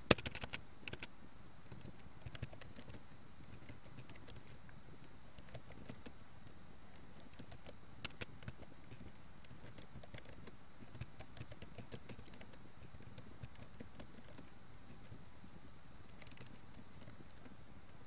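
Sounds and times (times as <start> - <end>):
steady background hiss: 0.0 - 18.0
keyboard keys clicking: 0.1 - 1.1, 7.3 - 14.5, 16.1 - 17.5.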